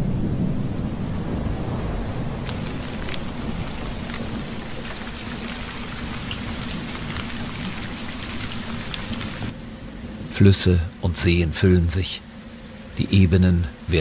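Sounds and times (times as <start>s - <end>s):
rain hissing on water: 0.0s - 14.0s
drops splashing: 2.4s - 9.5s.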